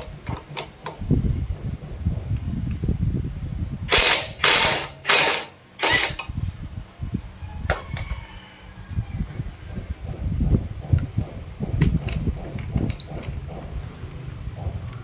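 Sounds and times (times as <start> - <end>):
impact wrench hammering: 3.9 - 6.3.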